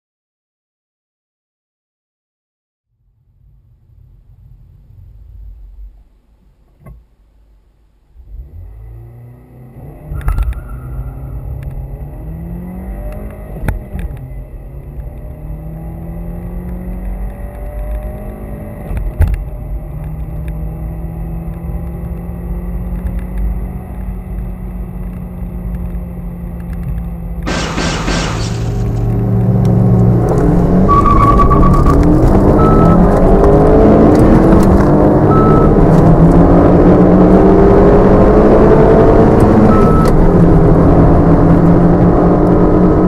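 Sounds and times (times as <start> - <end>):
road noise: 3.0 - 43.0
car engine accelerating: 8.1 - 43.0
gear changes: 21.4 - 43.0.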